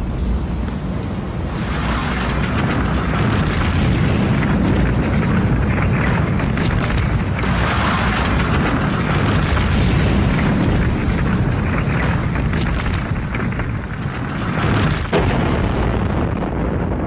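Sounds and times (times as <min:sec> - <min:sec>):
steel tower collapsing with rumbling roar: 0:00.0 - 0:17.0.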